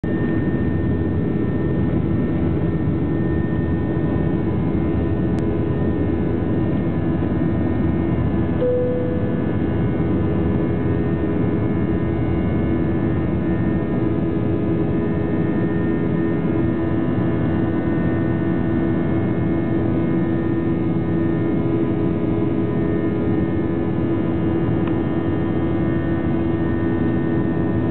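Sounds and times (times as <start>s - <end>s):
jet engines roaring in cabin: 0.0s - 27.9s
brief tone: 8.6s - 10.0s.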